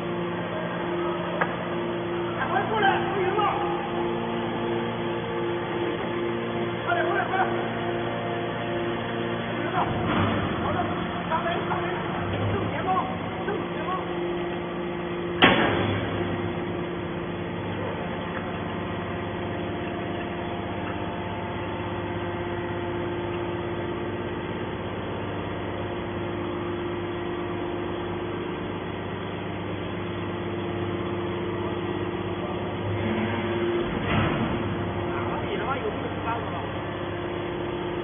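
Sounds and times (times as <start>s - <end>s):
hydraulic baler humming: 0.0s - 38.0s
sharp bang: 15.4s - 16.2s.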